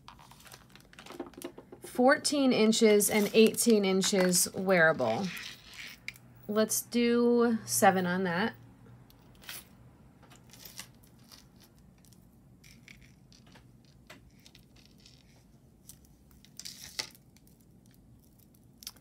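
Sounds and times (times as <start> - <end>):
jewelry clicks and rustles: 2.8 - 6.3, 9.0 - 19.0.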